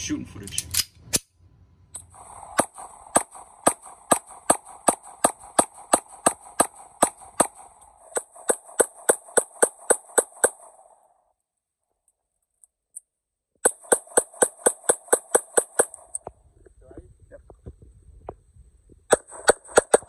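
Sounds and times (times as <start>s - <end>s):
pistol firing rapid shots: 2.2s - 11.0s, 13.6s - 16.1s, 19.1s - 20.0s.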